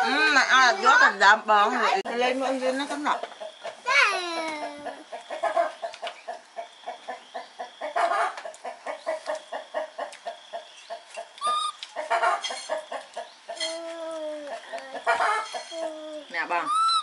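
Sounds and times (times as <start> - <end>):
chickens clucking: 1.8 - 17.0
long drawn-out chicken call: 11.4 - 12.8
chicken squawk: 11.4 - 13.0, 15.0 - 15.8, 16.6 - 17.0.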